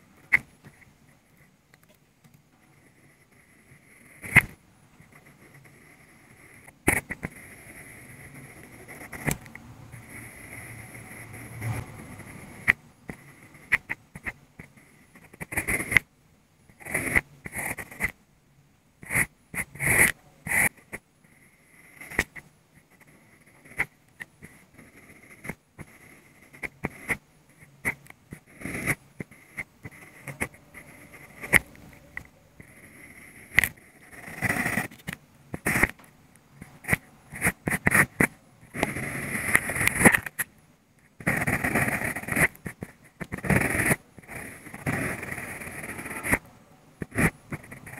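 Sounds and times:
pencil scratching on paper: 2.6s - 16.1s, 16.7s - 18.2s, 19.0s - 36.0s, 36.6s - 40.5s, 41.1s - 47.9s.

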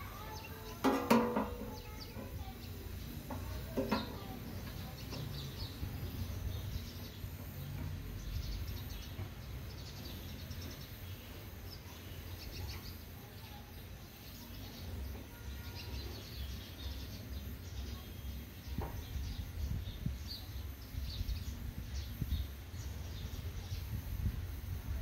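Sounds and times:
gas torch flame rumbling: 0.0s - 11.7s
birds chirping: 0.0s - 25.0s.

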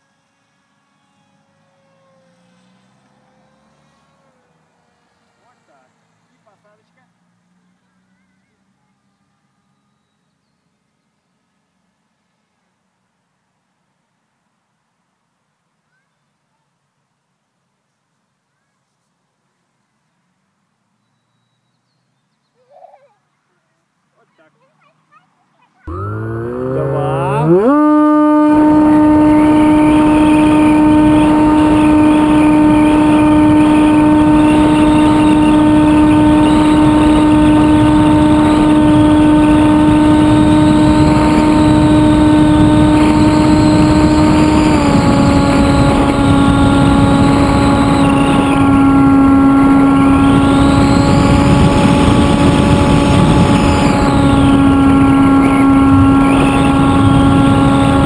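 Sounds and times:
electric motor and propeller whining: 0.0s - 4.4s, 25.9s - 58.0s
wind rushing over microphone: 25.9s - 58.0s.

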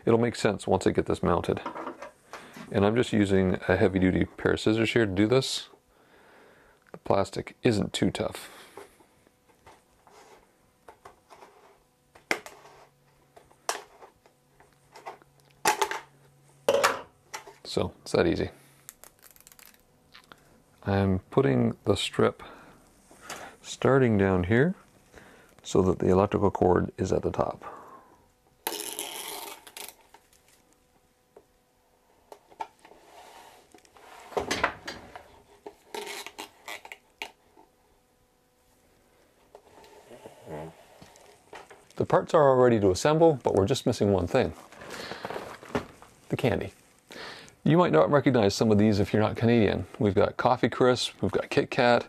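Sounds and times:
plastic film rubbing and crinkling: 19.0s - 19.8s, 28.7s - 30.7s.

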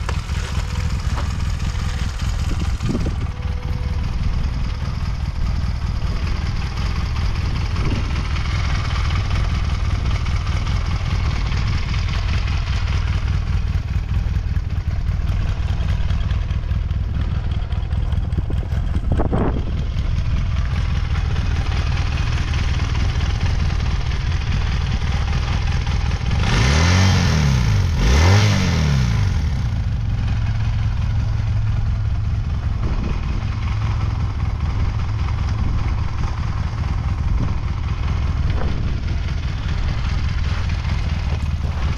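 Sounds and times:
motorcycle engine idling: 0.0s - 41.9s
engine revving: 25.9s - 31.0s.

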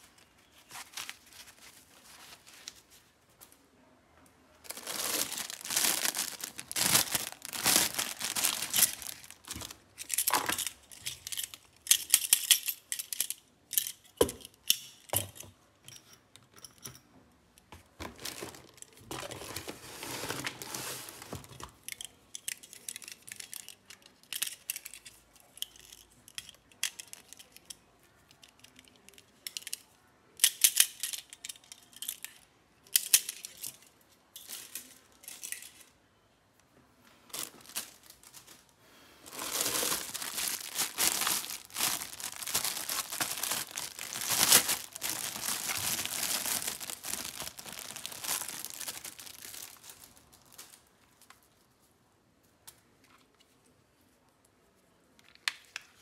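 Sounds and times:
plastic bags crinkling: 0.0s - 3.0s, 4.6s - 13.3s, 17.9s - 26.0s, 37.3s - 51.5s.

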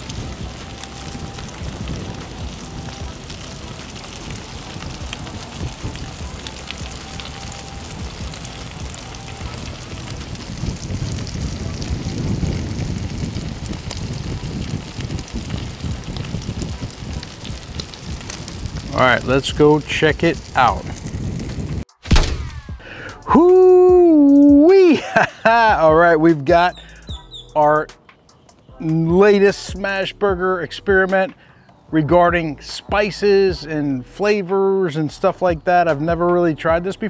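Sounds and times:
low rumble: 0.0s - 23.4s
burger patties sizzling: 0.0s - 25.5s.

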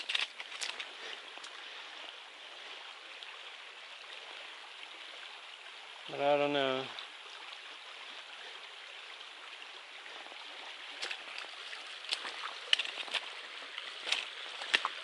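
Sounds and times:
footsteps on loose stones: 0.0s - 1.0s, 10.9s - 15.0s
creek running over rocks: 0.0s - 15.0s.

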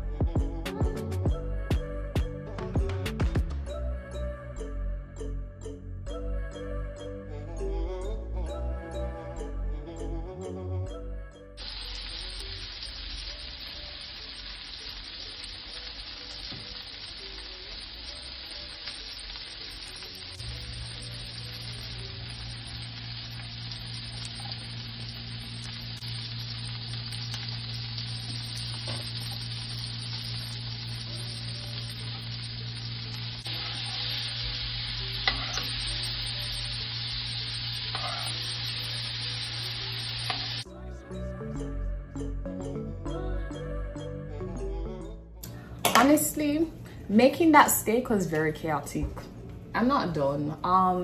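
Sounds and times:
low steady hum: 11.6s - 40.6s
steak sizzling in a pan: 11.6s - 40.7s
metal spoon clinking on pan: 35.0s - 40.6s.

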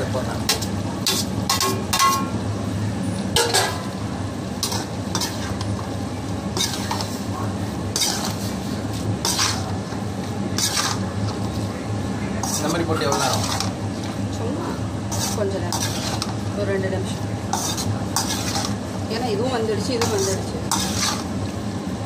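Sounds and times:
ladle scraping metal pan: 4.6s - 5.6s, 6.6s - 7.2s, 7.9s - 9.8s, 10.6s - 11.1s, 12.4s - 13.8s, 15.1s - 16.4s, 17.5s - 18.8s, 20.0s - 21.3s.

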